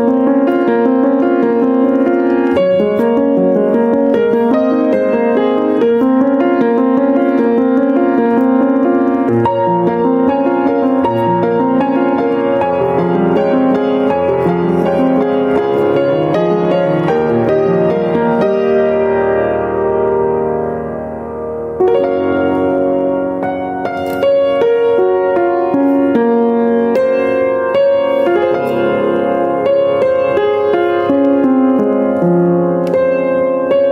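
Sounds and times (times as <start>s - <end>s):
low bass piano notes: 0.0s - 33.9s
upright piano playing: 0.0s - 33.9s.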